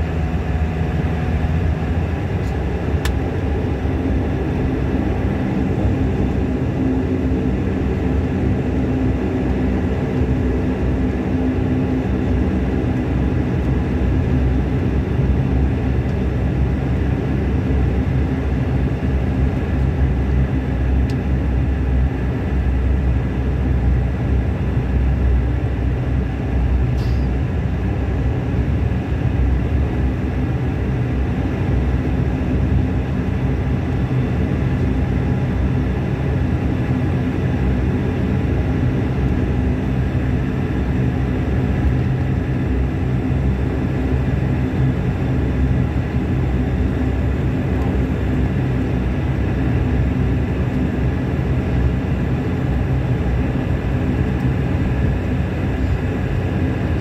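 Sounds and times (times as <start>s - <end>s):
turboprop engines running: 0.0s - 57.0s.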